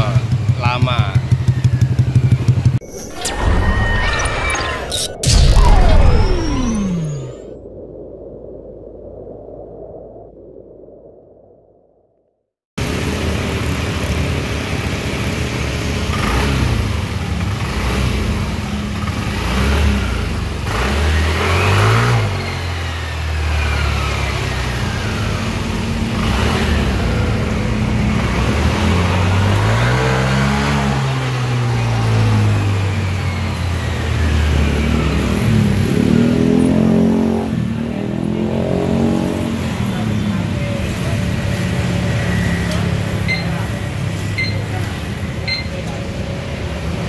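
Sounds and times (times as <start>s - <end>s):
scooter engine revving: 13.0s - 45.7s.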